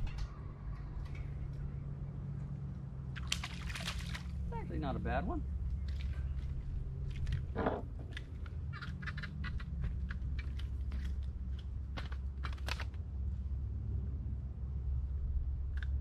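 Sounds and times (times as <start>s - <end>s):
steady low hum: 0.0s - 16.0s
fish splashing at water surface: 3.1s - 4.5s.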